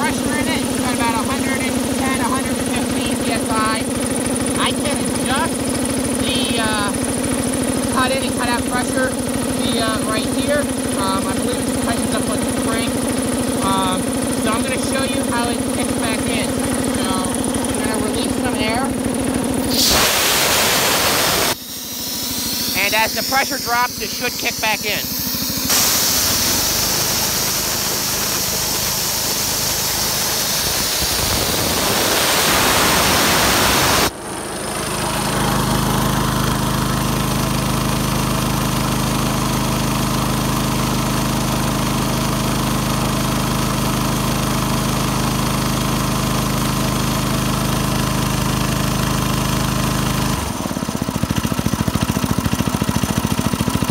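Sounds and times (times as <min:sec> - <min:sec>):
air compressor engine running: 0:00.0 - 0:53.9
compressed air hissing: 0:19.6 - 0:34.1.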